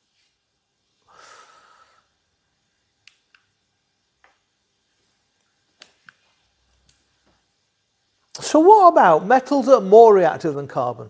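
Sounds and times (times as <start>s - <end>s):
short breath: 1.0s - 2.1s
faint sharp clicks: 3.0s - 3.5s, 5.8s - 6.2s.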